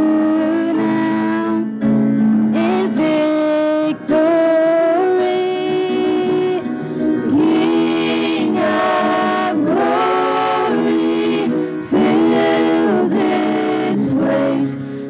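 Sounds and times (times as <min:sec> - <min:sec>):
piano accompaniment: 0:00.0 - 0:15.0
vocal group singing in harmony: 0:04.0 - 0:15.0.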